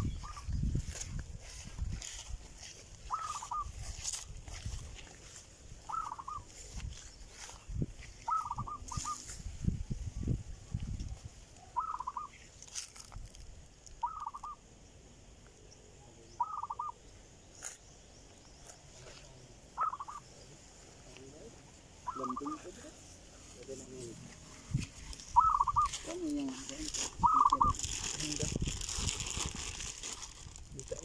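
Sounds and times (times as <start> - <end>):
bird calling in quick notes: 0.0 - 0.6, 3.0 - 4.1, 5.8 - 9.4, 11.6 - 12.5, 13.9 - 14.6, 16.3 - 17.0, 19.7 - 20.4, 22.0 - 22.9, 25.1 - 26.5, 27.2 - 27.8
footsteps through grass: 0.0 - 14.6, 17.5 - 31.0.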